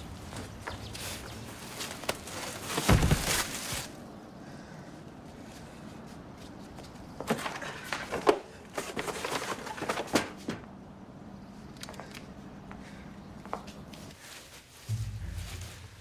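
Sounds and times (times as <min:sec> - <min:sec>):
boxes thudding and scraping: 0:02.2 - 0:03.7, 0:07.2 - 0:10.6.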